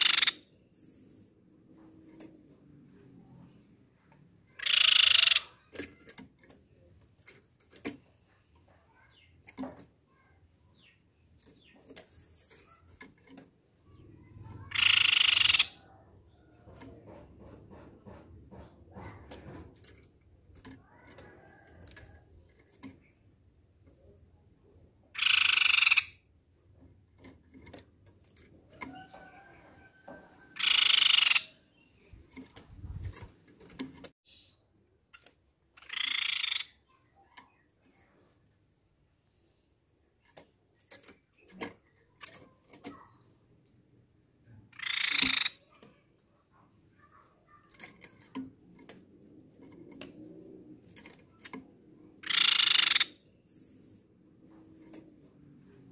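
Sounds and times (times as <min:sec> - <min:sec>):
bird harsh rasping calls: 0:00.0 - 0:01.0, 0:04.5 - 0:06.0, 0:13.8 - 0:16.5, 0:25.1 - 0:26.3, 0:30.4 - 0:32.2, 0:35.7 - 0:37.6, 0:44.7 - 0:48.3, 0:52.2 - 0:54.2.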